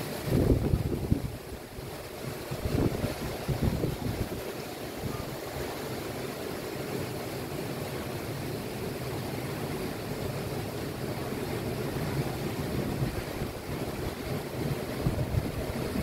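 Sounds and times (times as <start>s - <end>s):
heavy surf breaking on a wall: 0.0s - 16.0s
storm wind rushing: 0.2s - 4.4s, 12.8s - 16.0s.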